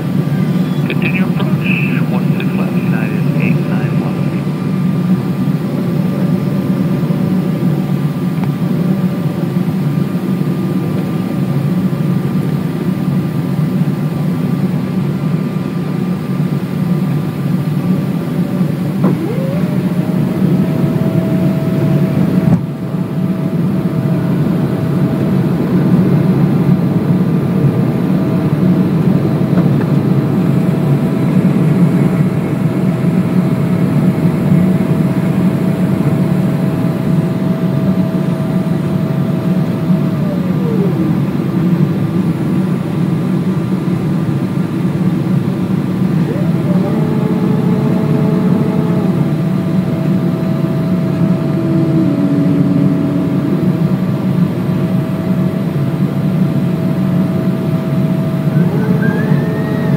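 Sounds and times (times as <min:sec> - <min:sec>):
jet engine noise: 0:00.0 - 0:59.9
rising whine: 0:17.8 - 0:59.9.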